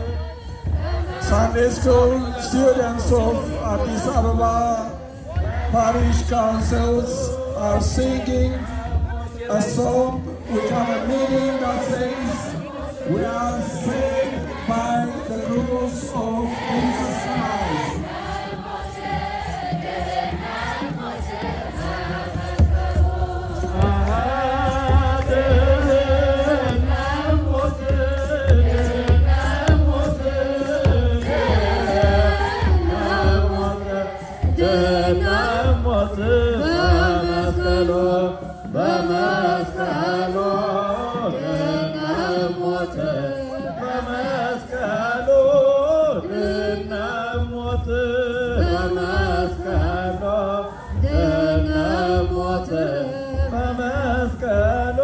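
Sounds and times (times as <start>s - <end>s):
low pulsing beat: 0.0s - 43.4s
choir singing a hymn in unison: 0.0s - 55.0s.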